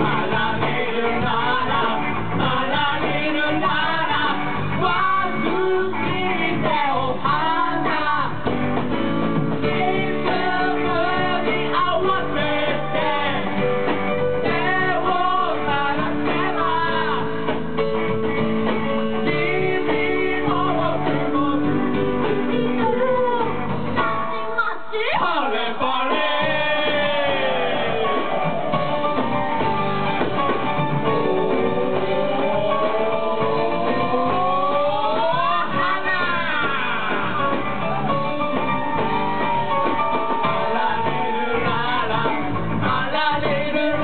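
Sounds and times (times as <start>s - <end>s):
person singing: 0.0s - 8.5s, 9.6s - 13.8s, 14.4s - 17.6s, 19.2s - 23.8s, 31.0s - 38.2s, 39.4s - 44.0s
live band playing: 0.0s - 44.0s.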